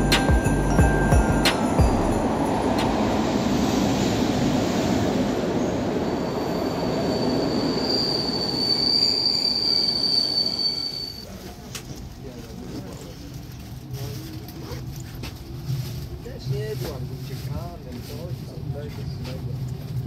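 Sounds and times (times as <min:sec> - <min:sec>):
high wheel squeal: 0:00.0 - 0:11.3
train wheels rumbling on rail: 0:00.0 - 0:20.0.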